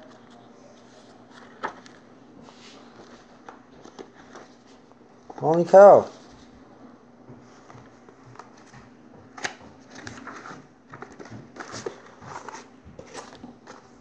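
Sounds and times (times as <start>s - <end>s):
paper rustling: 0.0s - 6.5s, 7.4s - 14.0s.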